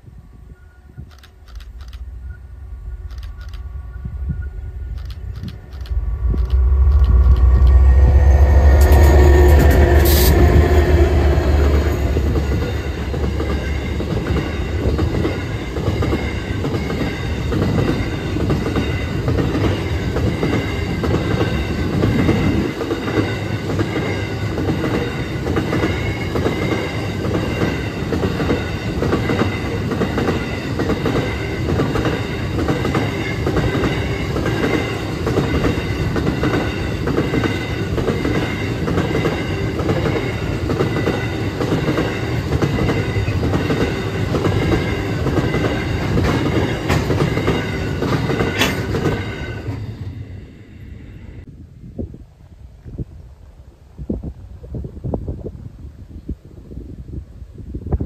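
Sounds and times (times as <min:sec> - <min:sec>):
train locomotive rumbling past: 0:00.0 - 0:51.6
train wheels clattering on rails: 0:04.9 - 0:50.1.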